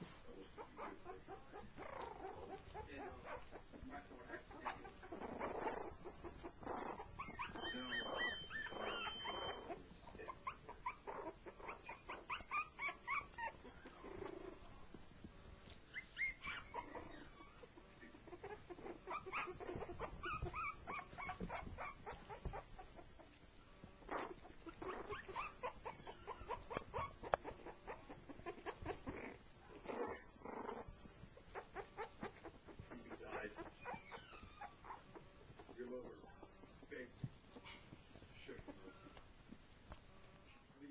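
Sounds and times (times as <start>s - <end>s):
puppies whimpering and yipping: 0.0s - 36.9s, 37.5s - 40.4s.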